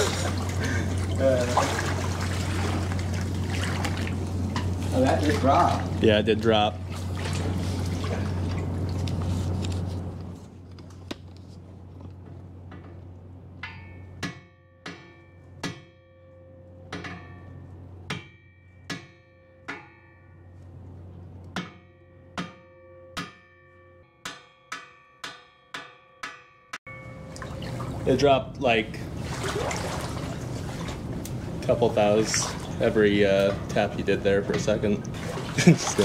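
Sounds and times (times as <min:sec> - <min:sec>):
steady hum: 0:00.0 - 0:23.2, 0:26.9 - 0:36.0
hammer tapping metal propeller: 0:13.6 - 0:20.4, 0:21.4 - 0:27.5.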